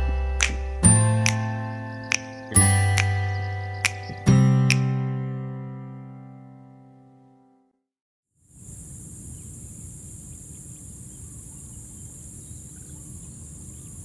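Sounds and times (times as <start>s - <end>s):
high-pitched insect chorus: 8.4s - 14.0s
faint bird chirps: 8.8s - 14.0s.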